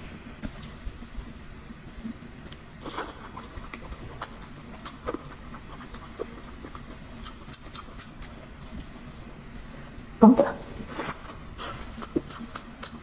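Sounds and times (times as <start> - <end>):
wet mouth clicks: 2.4 - 8.9, 11.6 - 13.0
chewing and slurping noodles: 2.8 - 9.0.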